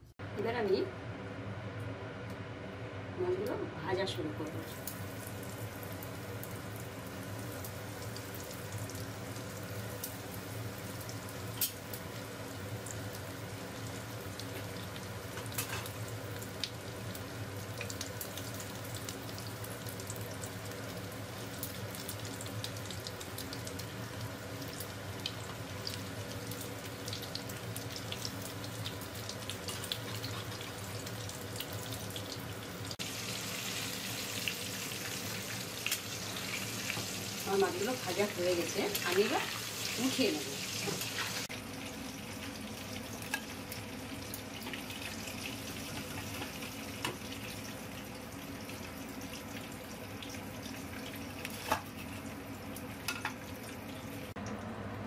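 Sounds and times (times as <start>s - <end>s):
prawns sizzling in hot oil: 4.4s - 54.4s.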